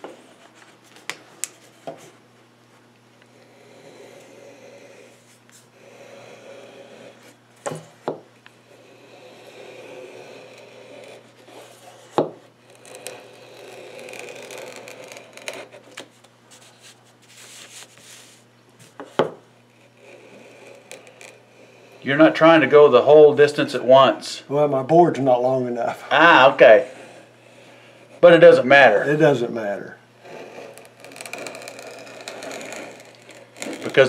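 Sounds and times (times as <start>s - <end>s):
cutter scraping wood veneer: 3.3s - 7.4s, 8.6s - 18.4s, 19.7s - 24.2s, 26.1s - 34.0s.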